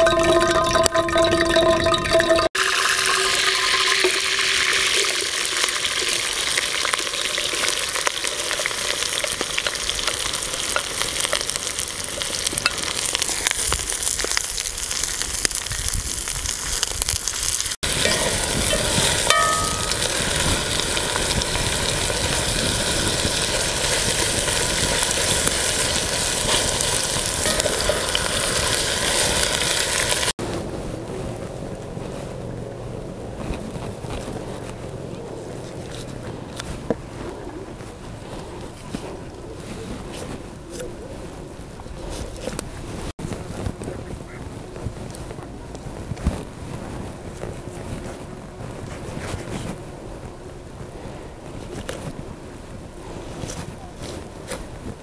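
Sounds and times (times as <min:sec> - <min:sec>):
onions sizzling in hot oil: 0:02.6 - 0:30.3.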